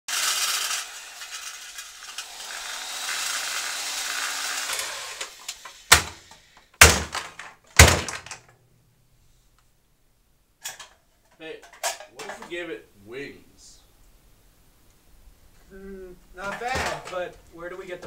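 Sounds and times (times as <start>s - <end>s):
loud bangs: 4.6s - 8.5s
hissing clattering noise: 4.7s - 8.5s.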